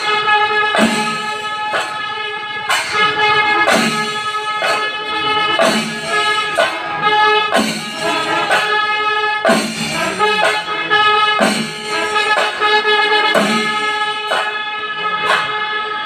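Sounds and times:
massed drums: 0:00.0 - 0:15.6
cymbals: 0:00.0 - 0:16.0
horns sounding held notes: 0:00.0 - 0:16.0.

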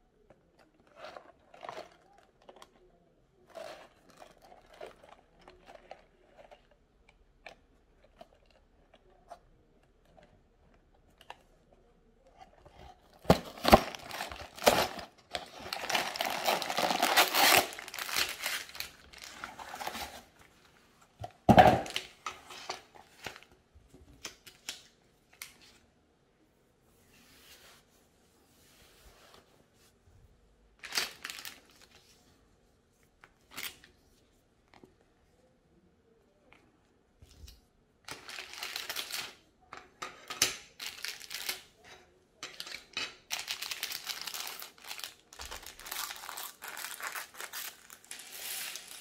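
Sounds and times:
plastic bags crinkling: 0:13.2 - 0:20.4, 0:30.8 - 0:31.9, 0:38.1 - 0:39.4, 0:40.7 - 0:41.6, 0:42.5 - 0:49.0
cardboard ripping and scraping: 0:13.3 - 0:20.3.

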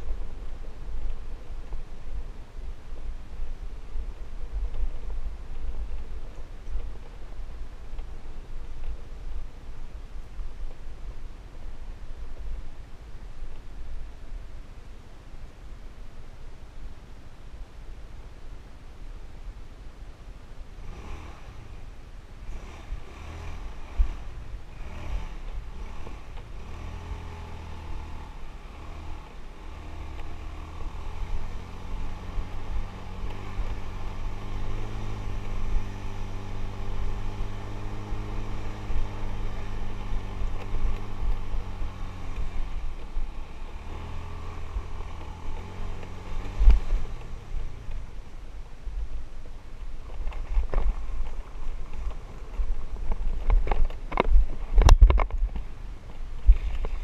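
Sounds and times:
motorbike engine running: 0:22.4 - 0:48.3.

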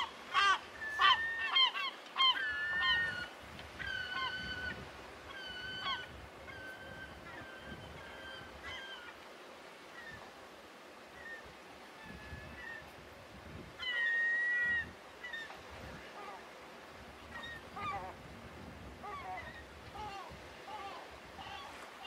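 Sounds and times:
bird calls: 0:00.0 - 0:09.2.

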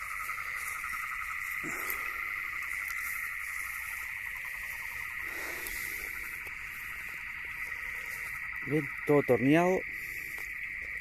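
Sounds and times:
frogs calling: 0:00.0 - 0:11.0.

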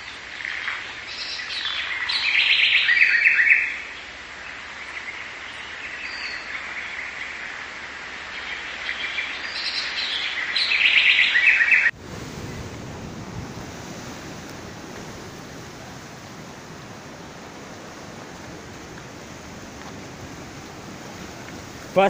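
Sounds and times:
wind: 0:00.0 - 0:22.0
sea surf on rocks: 0:11.9 - 0:22.0.

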